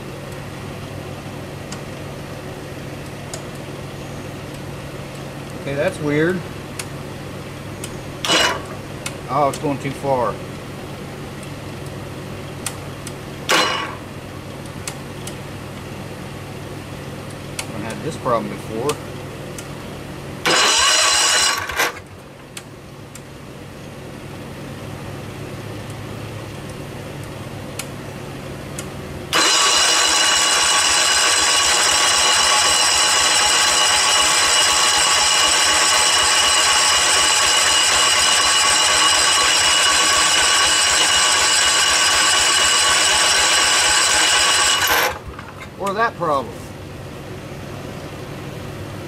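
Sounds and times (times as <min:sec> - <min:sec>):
electric starter cranking engine: 0:08.2 - 0:08.8, 0:13.5 - 0:14.0, 0:20.4 - 0:22.1, 0:29.3 - 0:45.6.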